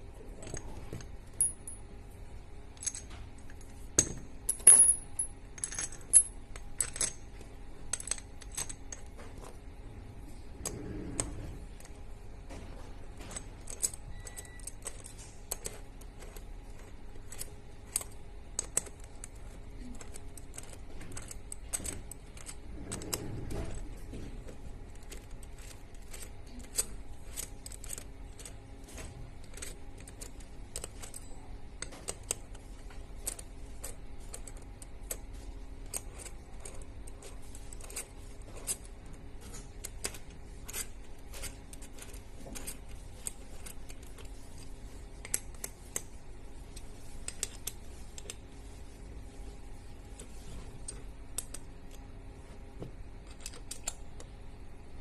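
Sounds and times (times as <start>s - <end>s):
faint steady hum: 0.0s - 55.0s
hex key clicking on screws: 7.9s - 9.1s, 13.3s - 23.8s, 29.4s - 32.6s, 53.2s - 54.3s.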